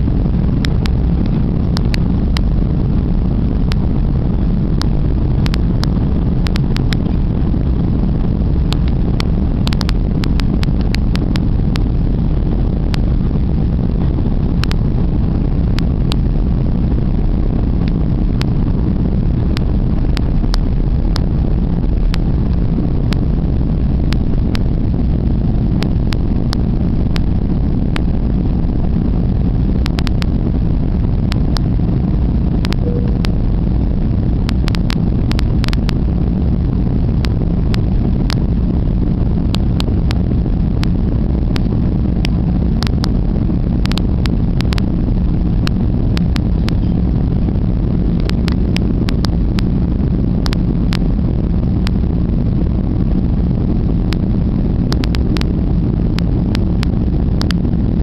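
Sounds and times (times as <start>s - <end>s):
jet engine rumble in cabin: 0.0s - 58.0s.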